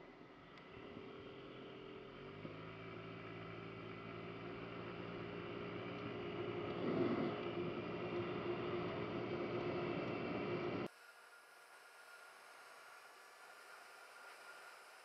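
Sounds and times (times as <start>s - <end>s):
scooter engine revving: 0.8s - 10.9s.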